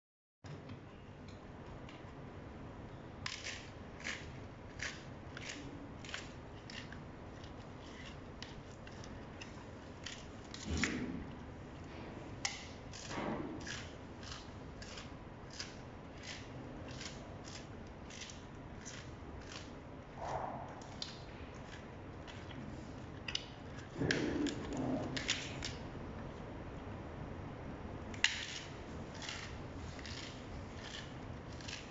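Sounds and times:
gorilla crunching leafy stalks: 29.1 - 31.9.

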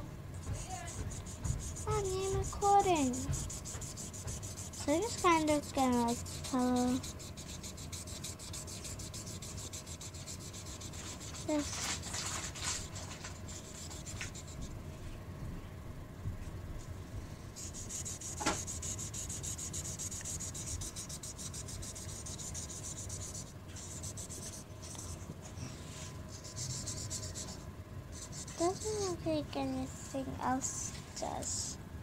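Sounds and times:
marker scribbling on paper: 0.4 - 14.7, 17.6 - 25.3, 25.9 - 29.2.

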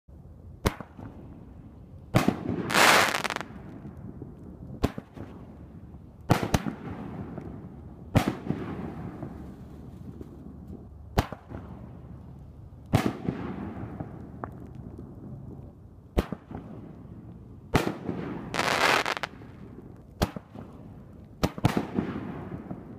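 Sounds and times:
firework bangs: 17.8 - 19.3
firework hissing: 18.6 - 19.3.

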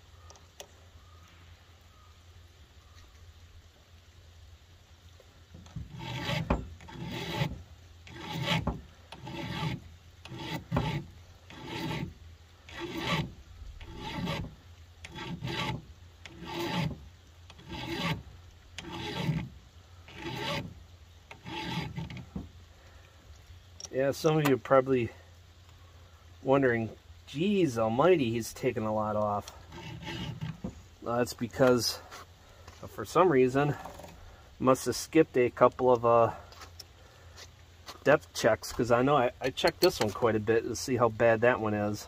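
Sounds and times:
file rasping on chain: 5.8 - 18.2, 18.8 - 19.5, 20.1 - 22.3, 29.7 - 30.6.

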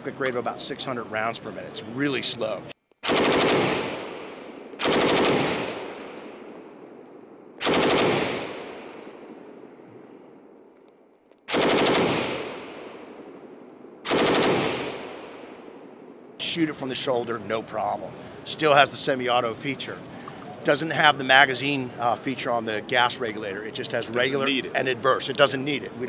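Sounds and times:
gunshot echo: 3.0 - 7.0, 7.6 - 10.4, 11.5 - 16.2
machine gun bursts: 3.1 - 3.9, 4.8 - 5.8, 7.6 - 8.4, 11.5 - 12.3, 14.1 - 14.8.

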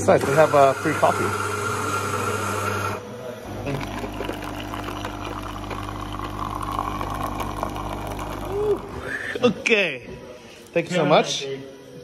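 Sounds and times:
vending machine pump hum: 0.0 - 9.4
coffee pouring into cup: 3.6 - 9.1.

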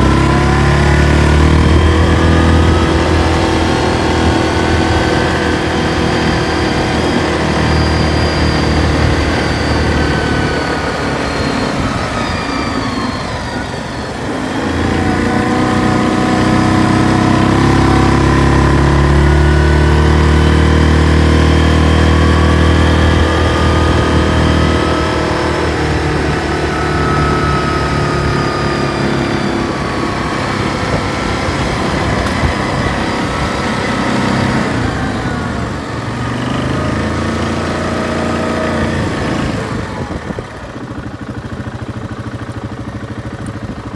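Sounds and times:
atv engine running: 0.0 - 43.9.

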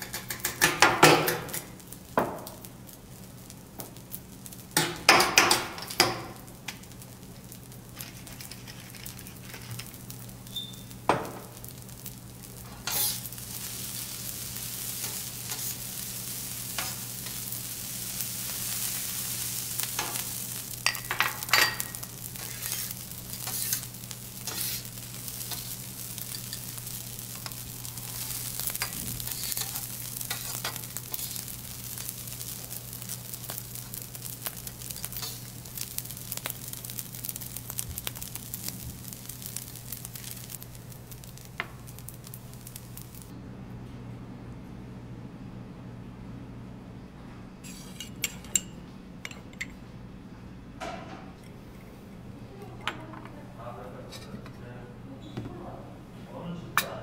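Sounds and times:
rice sizzling on a griddle: 0.0 - 43.3, 47.6 - 48.5
metal spatulas clattering: 20.8 - 24.8.

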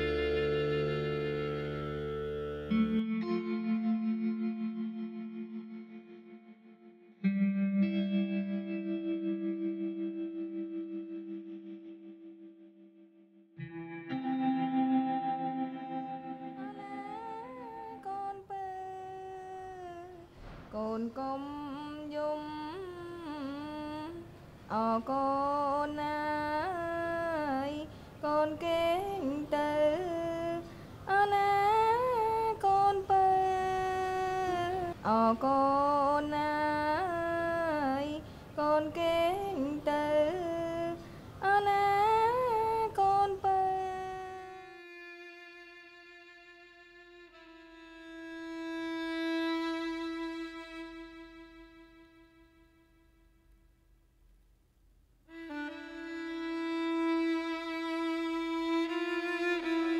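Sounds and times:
woman singing solo melody: 16.4 - 20.2.

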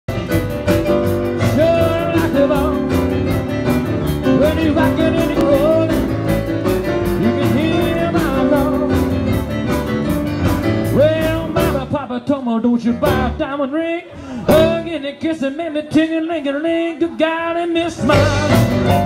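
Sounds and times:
pounding keyboard piano: 0.1 - 12.0, 18.1 - 19.0
live rock and roll band: 0.1 - 16.4, 17.2 - 19.0.

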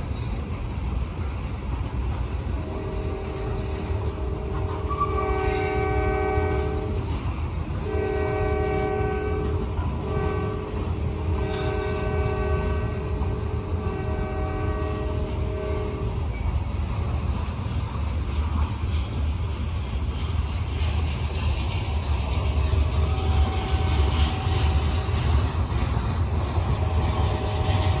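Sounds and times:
train passing rumble: 0.0 - 28.0
locomotive air horn blasts: 2.6 - 7.1, 7.8 - 16.2, 23.0 - 25.1, 26.6 - 28.0.

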